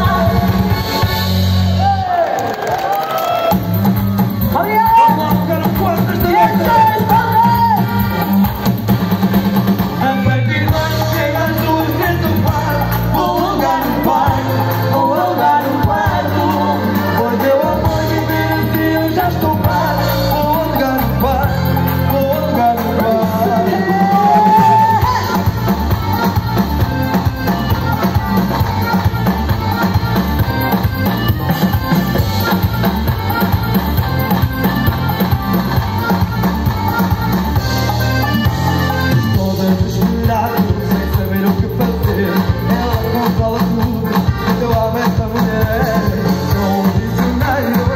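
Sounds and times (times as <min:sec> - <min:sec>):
people singing: 0:00.0 - 0:00.8, 0:10.0 - 0:25.6, 0:39.4 - 0:47.9
live band playing: 0:00.0 - 0:47.9.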